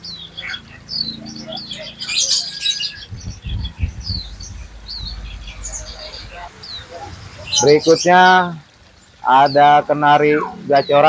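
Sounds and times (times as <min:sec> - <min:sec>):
songbirds chirping: 0:00.0 - 0:11.0
low thumps: 0:03.0 - 0:07.8.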